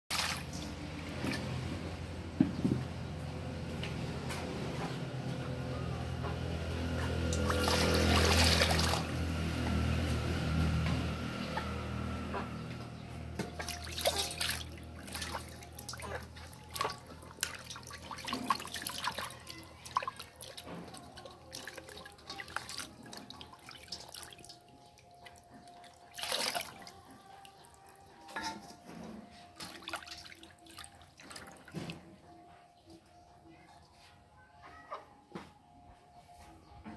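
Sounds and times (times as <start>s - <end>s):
water splashing in metal basin: 0.1s - 1.7s, 7.1s - 9.6s, 13.3s - 28.8s, 29.5s - 32.0s.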